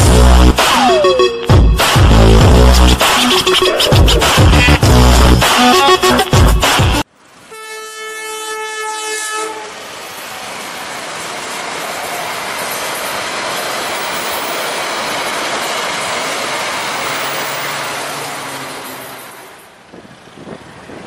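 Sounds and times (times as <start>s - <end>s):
train horn: 7.4s - 9.8s
train wheels on rails: 9.0s - 21.0s.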